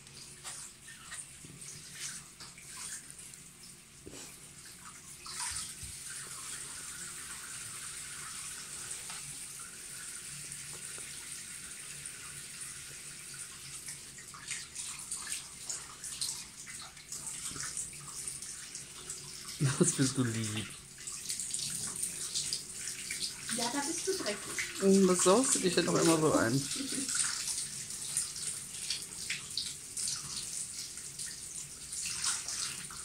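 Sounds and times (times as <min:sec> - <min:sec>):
bath water running: 0:00.0 - 0:33.0
water splashing: 0:19.4 - 0:31.4.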